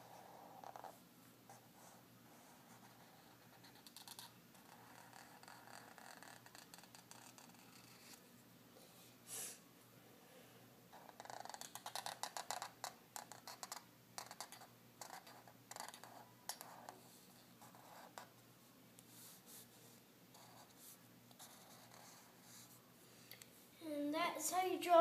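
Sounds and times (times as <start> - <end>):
marker scratching on paper: 0.0 - 8.2, 10.9 - 18.3, 19.1 - 22.8.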